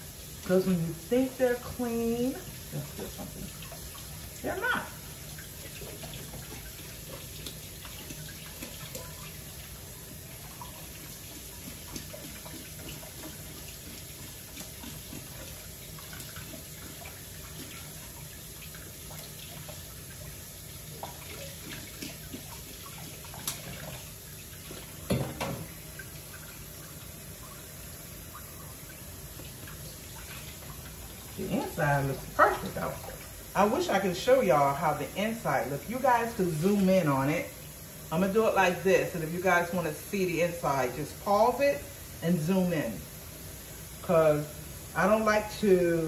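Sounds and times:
tap running into a sink: 2.5s - 4.1s, 20.9s - 26.3s
small knocks and splashes: 5.3s - 9.6s, 10.3s - 26.6s.

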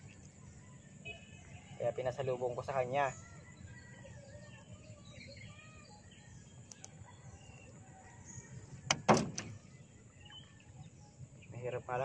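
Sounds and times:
faint birds chirping: 0.0s - 12.0s
fish thudding on boat bottom: 8.9s - 9.6s.

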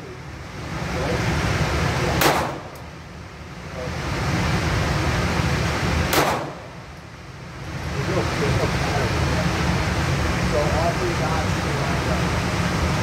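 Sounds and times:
steady noisy background: 0.0s - 13.0s
handgun shot with echo: 2.2s - 2.8s, 6.1s - 6.6s.

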